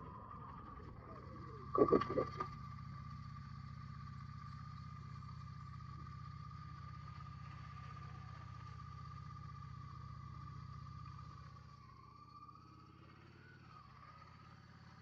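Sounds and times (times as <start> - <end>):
motorcycle engine humming: 0.0 - 11.8.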